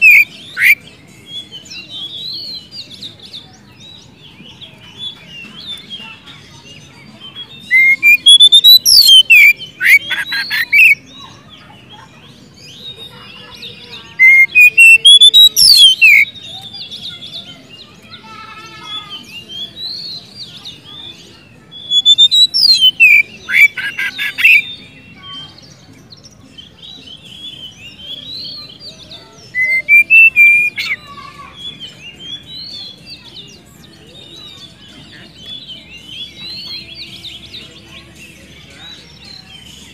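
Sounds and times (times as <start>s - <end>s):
bird singing whistles and trills: 0.0s - 11.8s, 12.5s - 18.1s, 18.8s - 39.9s
soft bird twittering: 0.0s - 39.9s.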